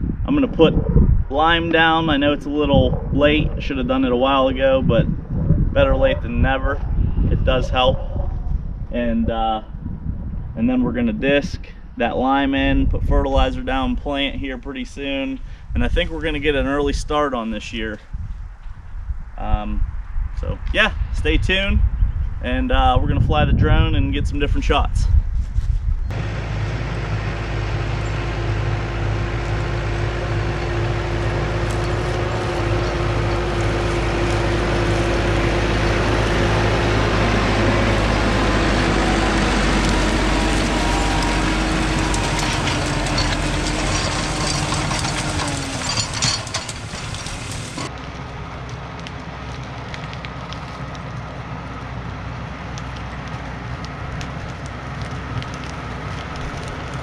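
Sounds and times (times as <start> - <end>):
plow crackling through soil: 25.4 - 57.0
tractor diesel engine: 26.1 - 57.0.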